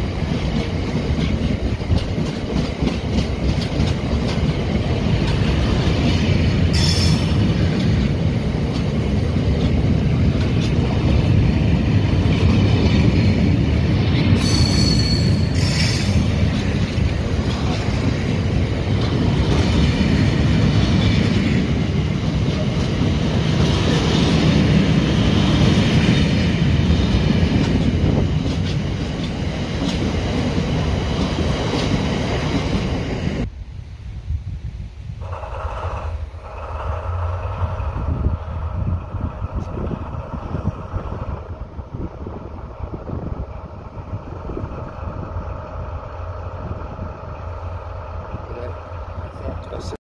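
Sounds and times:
steel wheels on rail: 0.0s - 33.5s, 35.1s - 50.0s
high wheel squeal: 14.4s - 16.2s.

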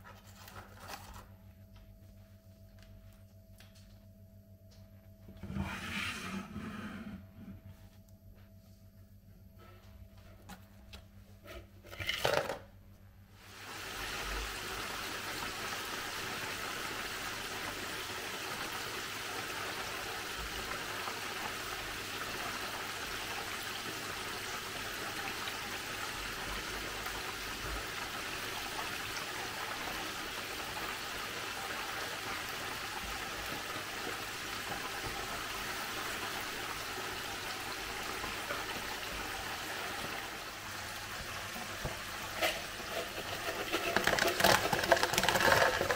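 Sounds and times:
chicken deep-frying in oil: 13.4s - 45.9s.

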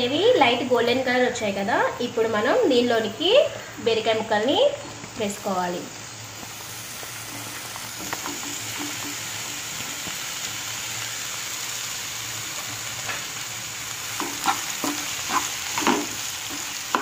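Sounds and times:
oil sizzling in a frying pan: 0.0s - 17.0s.

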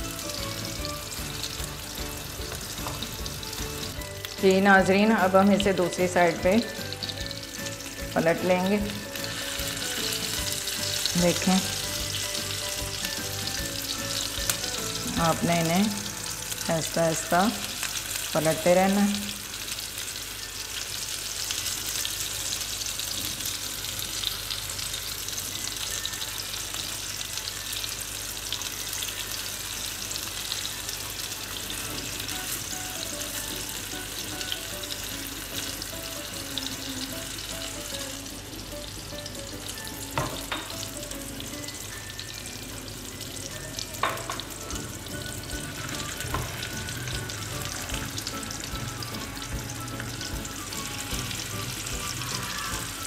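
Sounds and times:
kebabs sizzling in a pan: 0.0s - 53.0s.

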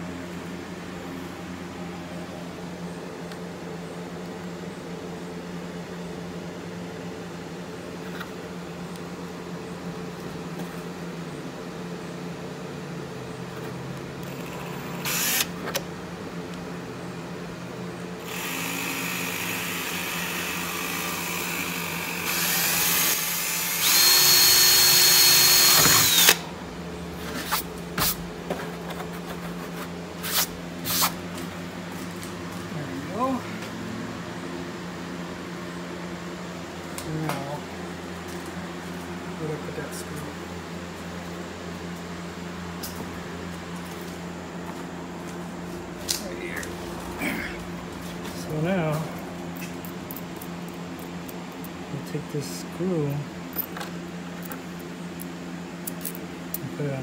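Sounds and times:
cordless drill whining: 14.3s - 15.6s, 18.2s - 26.5s.

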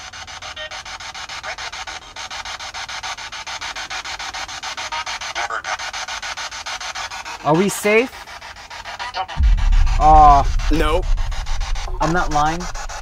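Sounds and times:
voice-like fragment: 9.4s - 13.0s.

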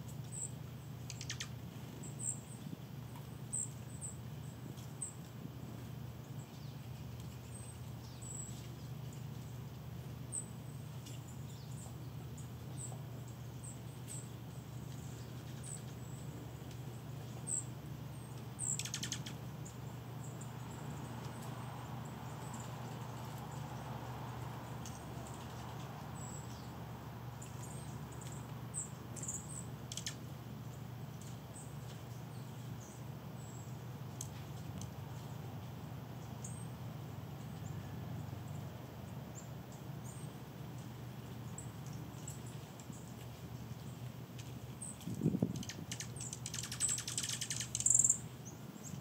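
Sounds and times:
low background hum: 0.0s - 49.0s
songbird chip notes: 0.0s - 49.0s
noisy rustle: 40.3s - 49.0s.

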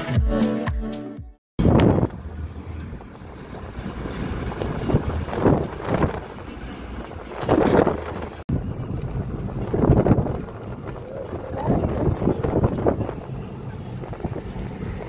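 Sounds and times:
car and road rumble: 1.6s - 15.0s
wind buffeting microphone: 1.6s - 15.0s.

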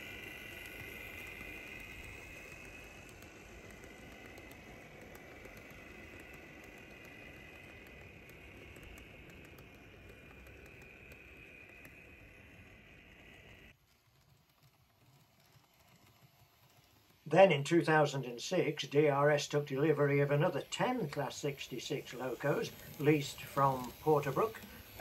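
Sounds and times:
train wheels clicking over track: 0.0s - 25.0s
electric motor whining: 19.6s - 25.0s.

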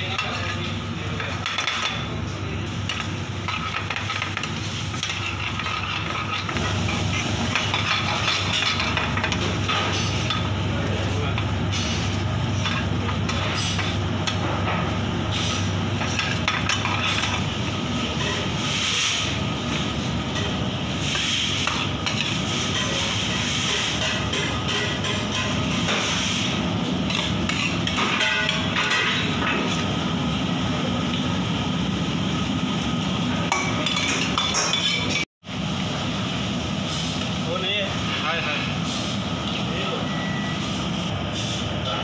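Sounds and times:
steady low hum: 0.0s - 33.8s.

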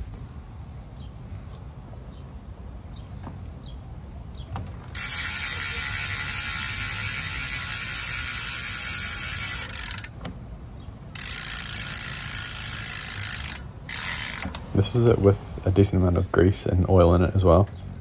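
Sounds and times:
bicycle hub ratcheting buzz: 4.8s - 10.3s, 11.0s - 14.6s.

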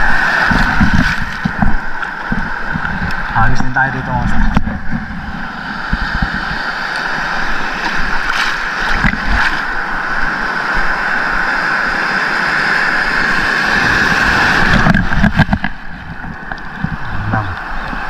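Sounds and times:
sea water washing: 0.0s - 18.0s
wave breaking with splash: 5.6s - 15.9s.

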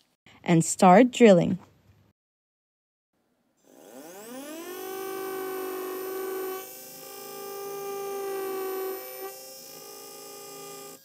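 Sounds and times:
dental drill high whine: 3.6s - 11.0s.

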